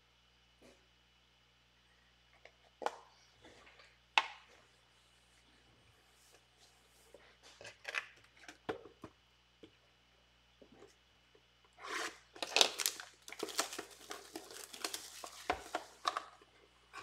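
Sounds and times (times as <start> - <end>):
cardboard rustling: 11.8 - 17.0.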